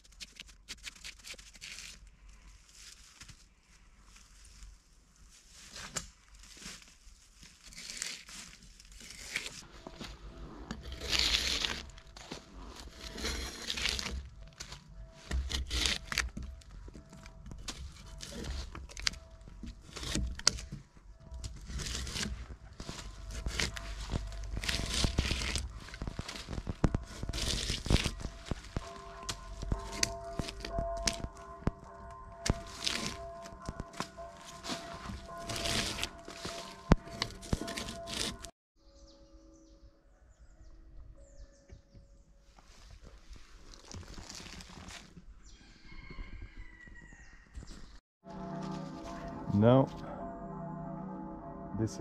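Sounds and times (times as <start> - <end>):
bark tearing: 7.5 - 9.6, 10.7 - 20.8, 21.4 - 31.4, 32.5 - 38.5, 43.7 - 45.2
drawknife scraping wood: 10.7 - 20.8, 21.4 - 31.3, 32.5 - 38.5.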